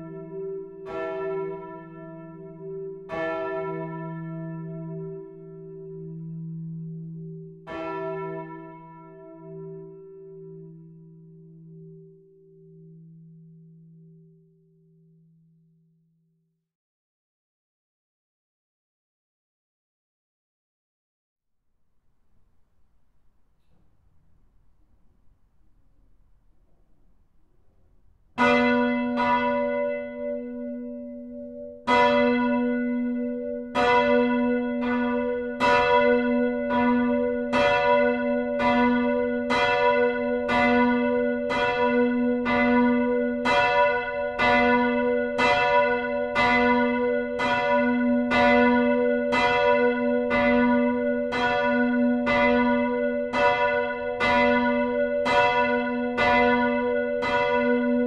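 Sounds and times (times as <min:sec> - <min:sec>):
church bells ringing: 0:00.0 - 0:15.2, 0:28.0 - 0:58.0.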